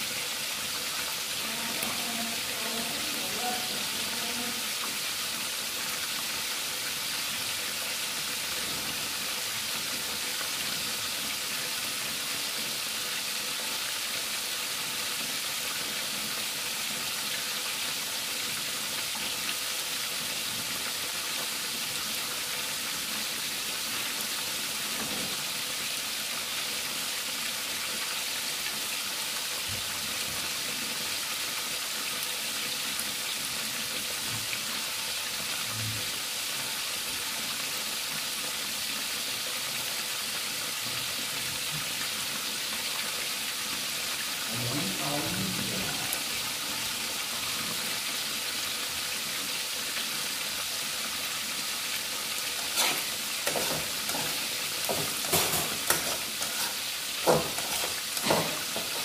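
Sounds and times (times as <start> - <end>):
fish deep-frying in oil: 0.0 - 59.0.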